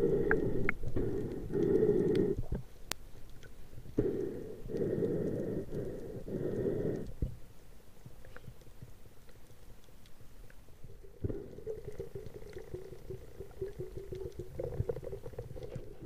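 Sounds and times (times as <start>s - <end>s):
muffled underwater water rushing: 0.0s - 16.0s.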